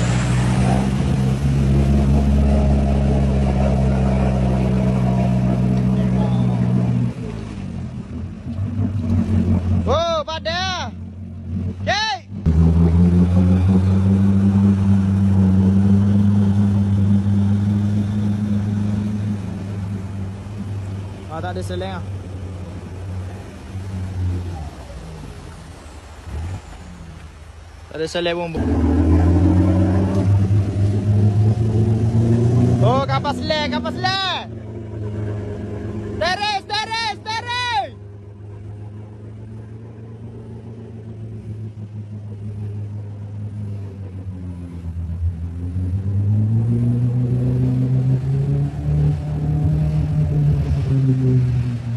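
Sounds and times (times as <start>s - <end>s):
vehicle engine running under load: 0.0s - 27.9s
water churning: 0.0s - 51.9s.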